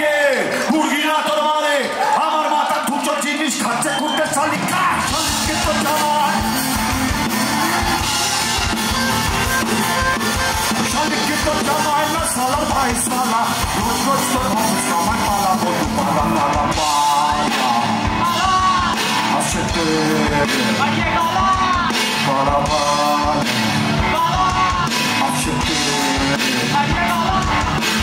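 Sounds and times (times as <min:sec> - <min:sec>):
rock band playing: 0:03.5 - 0:28.0
drum kit: 0:03.7 - 0:28.0
man singing: 0:04.0 - 0:06.9, 0:10.6 - 0:28.0.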